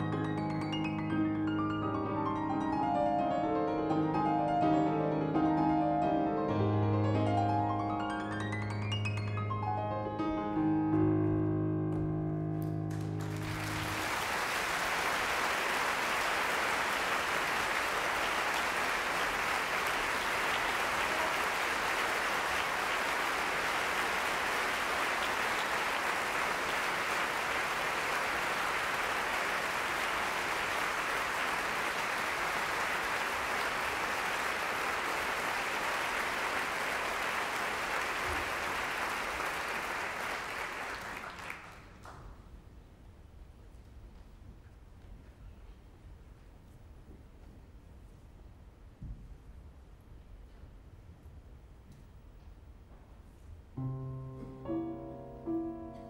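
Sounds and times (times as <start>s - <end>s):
grand piano notes: 0.0s - 14.2s, 53.8s - 56.0s
audience applause: 12.9s - 42.2s.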